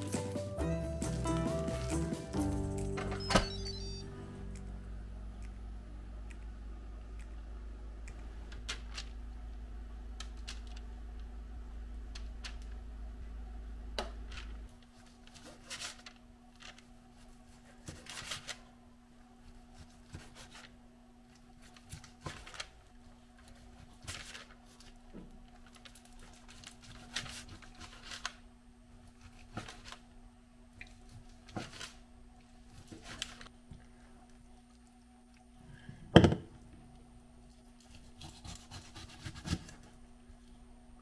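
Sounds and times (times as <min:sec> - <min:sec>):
steady low hum: 0:00.0 - 0:27.8
low rumble: 0:04.0 - 0:08.6.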